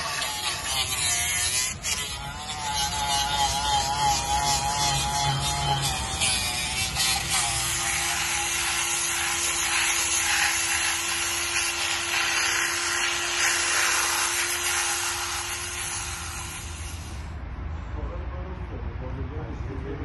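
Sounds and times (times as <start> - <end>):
electric drill motor hum: 0.0 - 17.3
sanding disc hissing on wood: 0.0 - 17.3.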